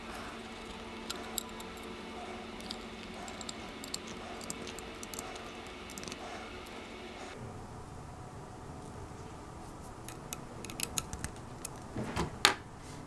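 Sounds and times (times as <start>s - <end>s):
screwdriver and screws clicking: 0.0s - 7.4s, 10.1s - 11.9s
steady hum: 0.0s - 12.1s.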